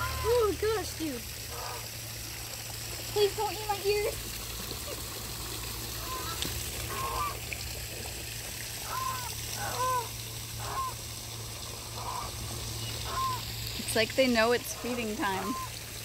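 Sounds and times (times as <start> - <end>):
waterfowl calling: 0.0 - 0.8, 1.5 - 1.9, 5.9 - 7.4, 8.8 - 11.1, 11.9 - 15.8.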